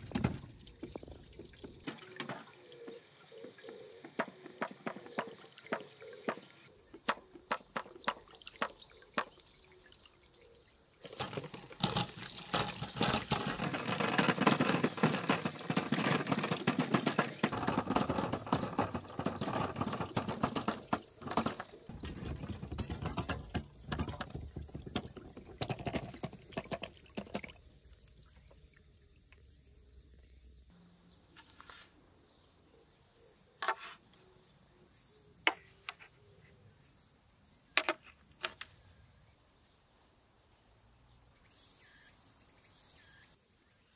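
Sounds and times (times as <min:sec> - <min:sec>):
marbles rattling down plastic channels: 0:11.0 - 0:27.5.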